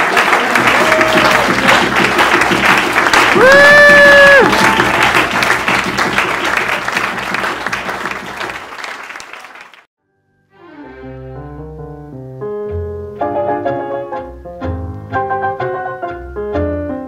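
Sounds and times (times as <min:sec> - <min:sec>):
audience applause: 0:00.0 - 0:09.9
piano and plucked strings music: 0:10.1 - 0:17.0.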